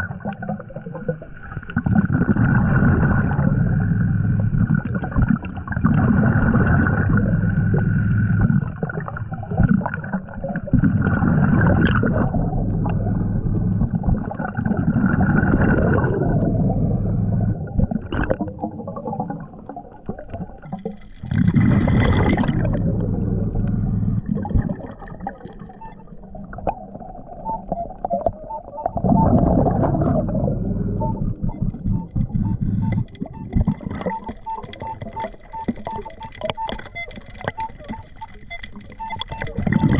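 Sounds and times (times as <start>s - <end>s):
short electronic beeps: 27.4s - 39.9s.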